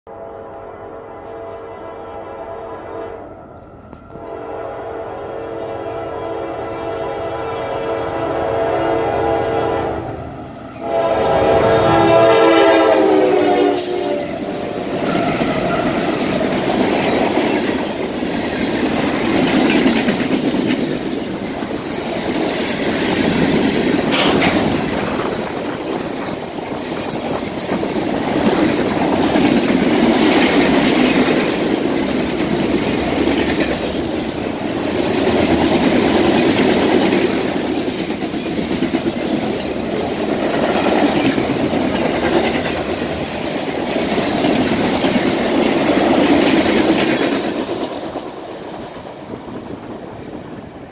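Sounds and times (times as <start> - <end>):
train wheels rumbling and clattering: 10.1 - 50.9.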